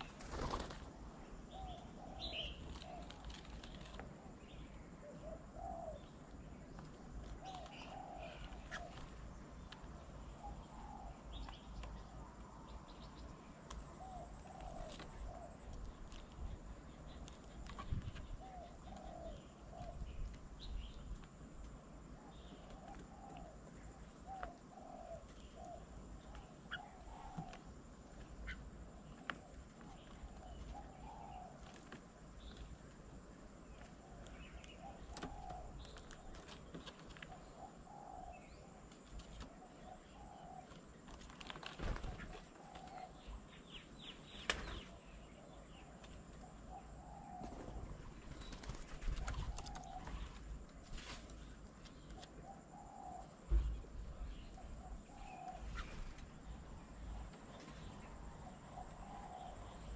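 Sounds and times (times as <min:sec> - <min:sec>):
wings fluttering: 0:00.0 - 0:01.1, 0:02.6 - 0:04.2, 0:41.0 - 0:43.0, 0:44.4 - 0:44.9, 0:47.4 - 0:52.3, 0:55.6 - 0:56.4
doves cooing: 0:00.0 - 0:12.4, 0:13.8 - 0:32.8, 0:33.5 - 0:59.9
small birds chirping: 0:00.0 - 0:59.9.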